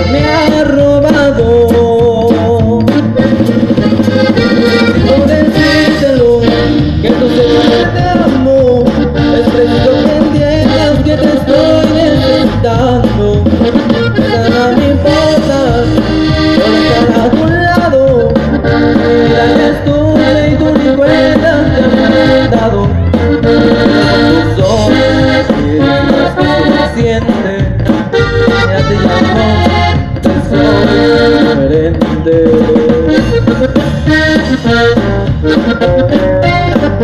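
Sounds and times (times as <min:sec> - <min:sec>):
accordion melody: 0:00.0 - 0:37.0
band rhythm section: 0:00.0 - 0:37.0
saxophone: 0:03.0 - 0:08.0.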